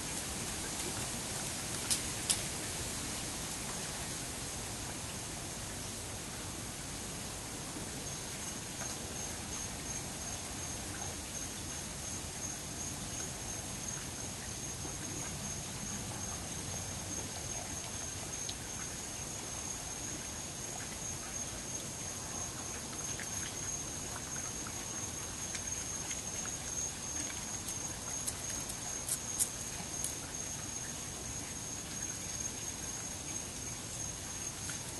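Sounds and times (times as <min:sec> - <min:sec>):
insect trill: 0:08.0 - 0:34.9.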